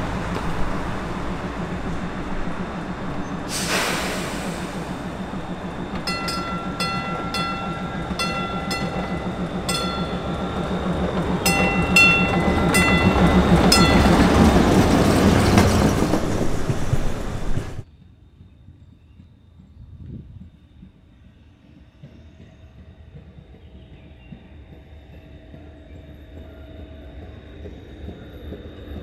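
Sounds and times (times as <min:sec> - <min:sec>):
trolley hum: 0:00.0 - 0:17.8
wheels rumbling on rails: 0:00.0 - 0:17.8
bell strokes: 0:01.1 - 0:15.9
short hiss: 0:03.5 - 0:05.0.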